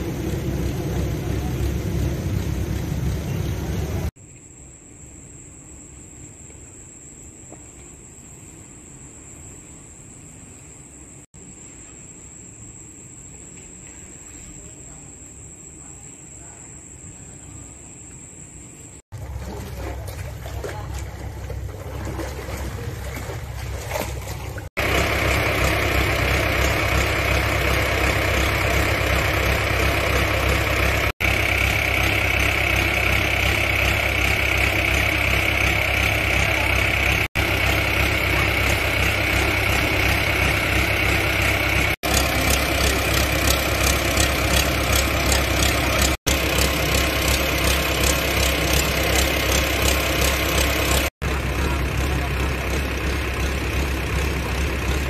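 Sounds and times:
water pump engine humming: 0.0s - 4.2s, 19.0s - 55.0s
floodwater washing over walkway: 19.1s - 53.7s.

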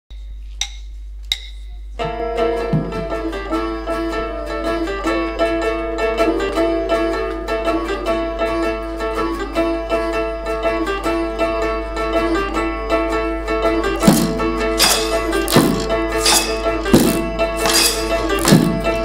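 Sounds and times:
low electrical hum: 0.1s - 5.3s
acoustic guitars playing tune: 13.9s - 19.0s.

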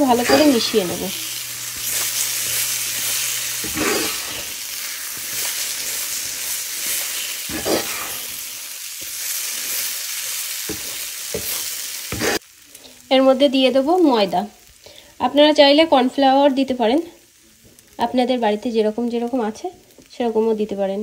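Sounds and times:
paste sizzling in hot oil: 0.0s - 15.4s.

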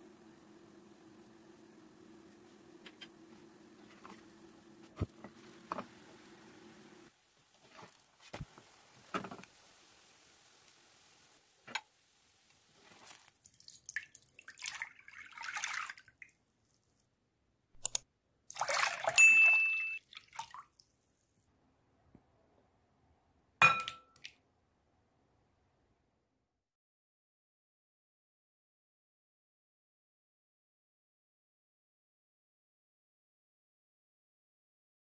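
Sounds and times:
cheese scraped from tub: 12.7s - 13.3s
milk pouring into glass bowl: 13.0s - 16.2s
glass-on-glass clink: 19.2s - 20.0s, 23.6s - 24.2s.

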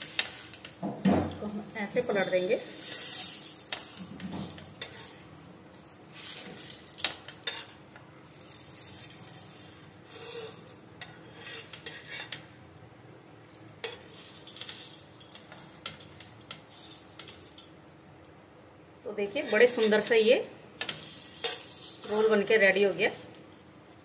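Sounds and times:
spatula scraping and tapping griddle: 0.0s - 1.5s, 2.6s - 12.6s, 13.5s - 17.9s, 19.4s - 20.1s, 20.8s - 22.5s
faint sizzle of frying: 0.0s - 24.0s.

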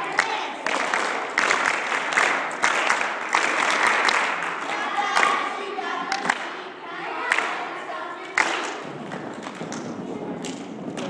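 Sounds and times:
cheerleaders chanting: 0.0s - 11.0s
sharp hand claps: 0.1s - 5.4s, 6.1s - 6.6s, 7.3s - 7.6s, 8.3s - 11.0s.

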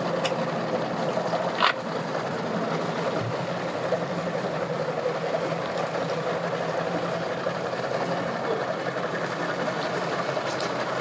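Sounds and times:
outboard motor idling: 0.0s - 11.0s.

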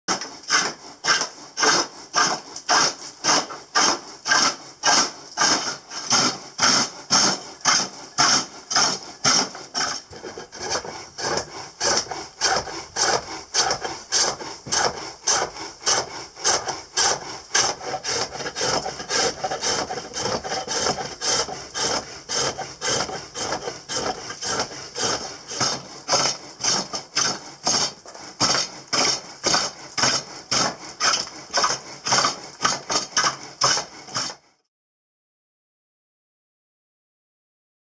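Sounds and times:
lathe tool cutting wood: 0.1s - 34.4s.

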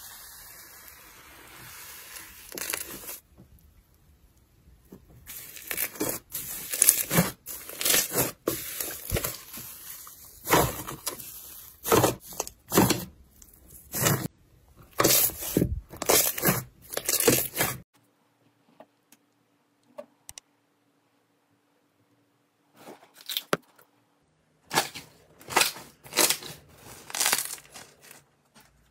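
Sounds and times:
slime squishing by hand: 4.8s - 14.3s.

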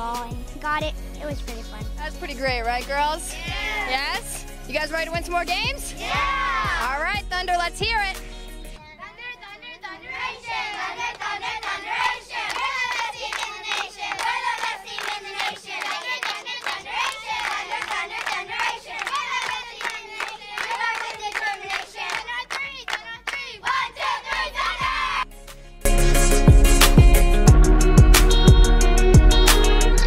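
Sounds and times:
girls chanting a cheer: 3.0s - 4.3s, 5.7s - 7.1s, 8.8s - 25.2s
rhythmic clapping: 10.1s - 25.6s, 26.6s - 28.6s.

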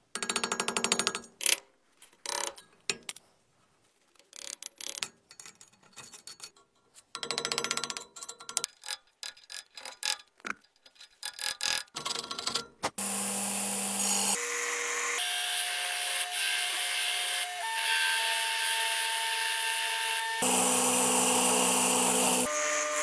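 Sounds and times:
belt grinder grinding metal: 13.0s - 23.0s.

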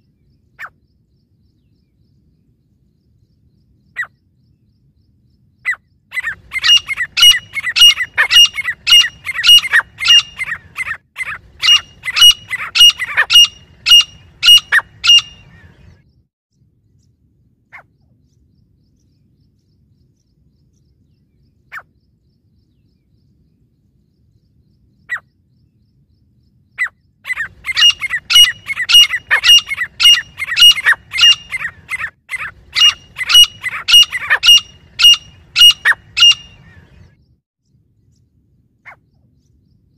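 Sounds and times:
francolins calling: 5.6s - 16.0s, 26.8s - 37.2s.

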